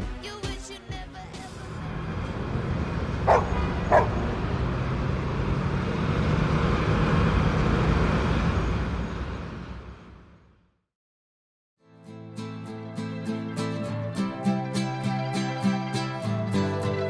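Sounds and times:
dog barking: 3.2s - 4.3s.

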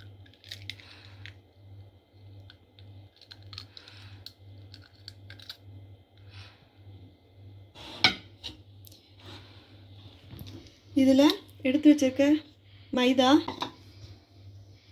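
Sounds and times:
eggshell cracking and clicking: 0.0s - 1.4s, 2.4s - 5.6s.

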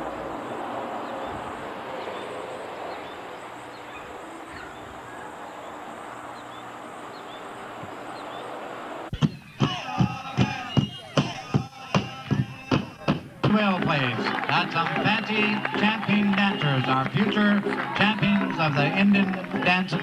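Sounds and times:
outdoor background hiss: 0.0s - 20.0s
loud drum beats: 9.1s - 20.0s.

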